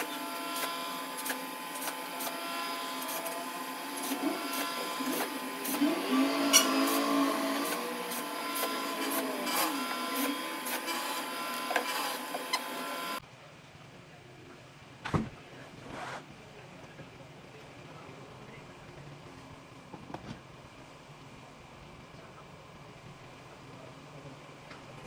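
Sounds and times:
cordless drill spinning: 0.0 - 13.2
steady mechanical hum: 0.0 - 25.0.

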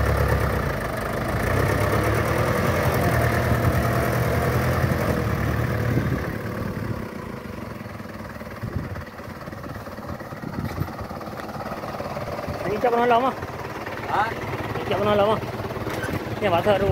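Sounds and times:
truck engine running: 0.0 - 16.9.

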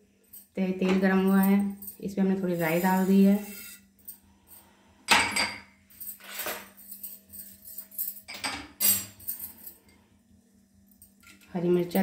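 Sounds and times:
faint steady hum: 0.0 - 12.0
metal utensils clattering: 5.1 - 9.8.

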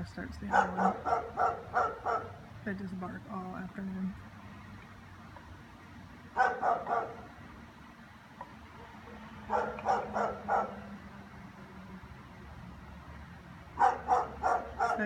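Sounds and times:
dog barking: 0.5 - 2.4, 6.4 - 7.3, 8.8 - 10.9, 13.8 - 15.0.

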